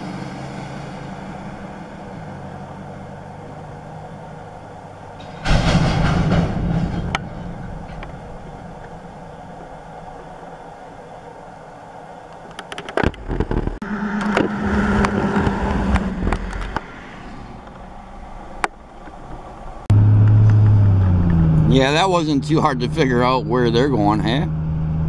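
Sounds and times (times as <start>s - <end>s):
low steady rumble: 0.8s - 12.6s, 13.2s - 25.0s
sharp knocks and rattles: 5.2s - 9.3s
vehicle engine from inside cabin: 13.8s - 16.9s, 17.6s - 21.7s.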